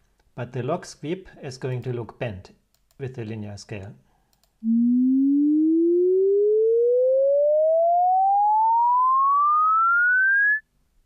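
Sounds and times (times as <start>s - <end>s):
sine tone sweeping upward: 4.6s - 10.6s.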